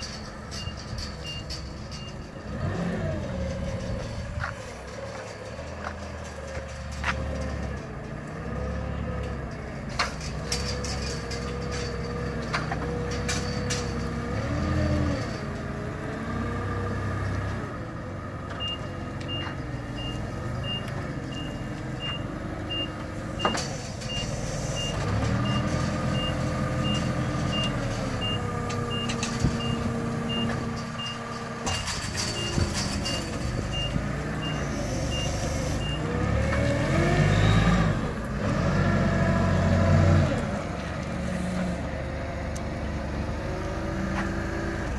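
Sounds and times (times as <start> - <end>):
forklift engine running: 0.0 - 44.9
reversing alarm beeping: 18.6 - 36.1.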